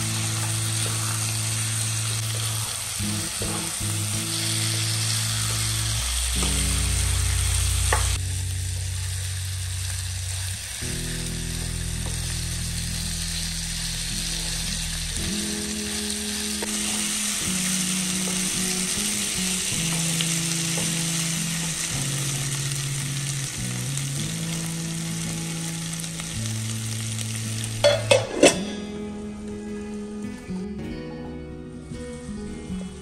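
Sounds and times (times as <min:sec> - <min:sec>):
food sizzling in hot oil: 0:00.0 - 0:29.4.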